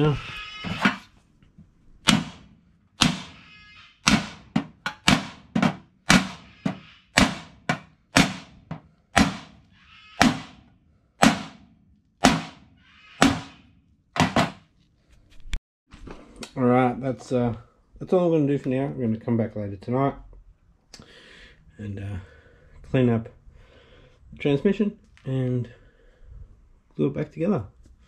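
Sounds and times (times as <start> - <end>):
hammer striking steel: 2.1 - 3.4, 4.0 - 9.6, 10.2 - 13.6.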